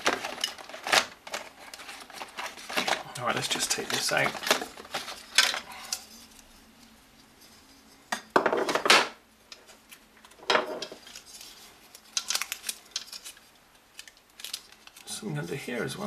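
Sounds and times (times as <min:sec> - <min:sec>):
metal covers clattering on wood: 0:08.1 - 0:09.2, 0:10.4 - 0:11.0.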